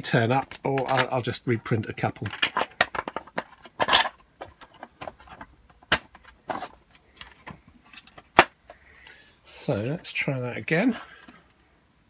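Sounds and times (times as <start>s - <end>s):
clicks and knocks of handled parts: 0.0s - 1.4s, 2.0s - 9.2s.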